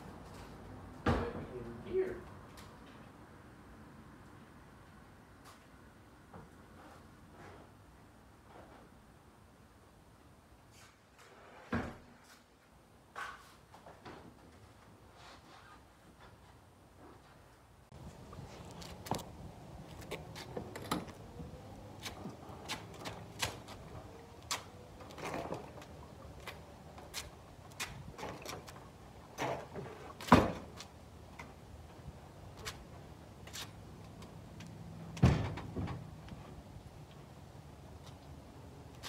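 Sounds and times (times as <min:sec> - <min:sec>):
quad bike knocks and clanks: 0:20.0 - 0:21.2.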